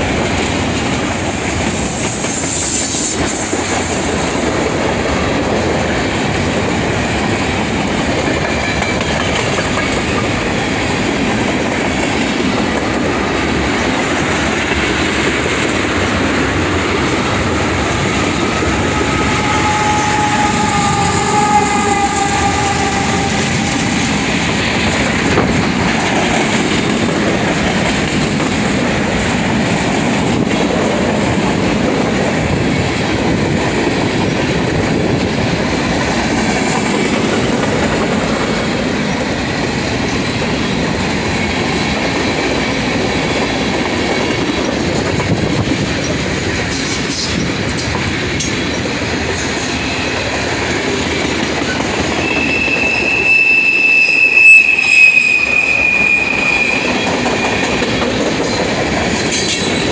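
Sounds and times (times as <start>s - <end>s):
train wheels clacking over rail joints: 0.0s - 53.3s, 56.2s - 59.9s
high-pitched wheel squeal: 17.4s - 24.4s, 52.2s - 58.0s.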